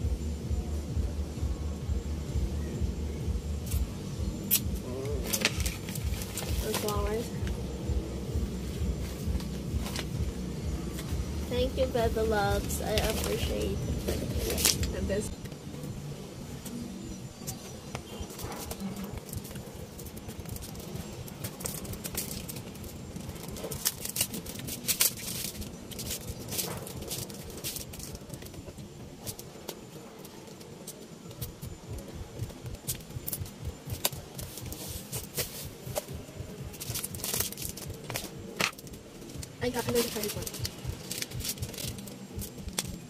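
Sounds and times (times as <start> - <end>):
foil wrappers crinkling: 5.2 - 7.4, 12.5 - 15.0, 18.1 - 31.6, 32.8 - 43.0.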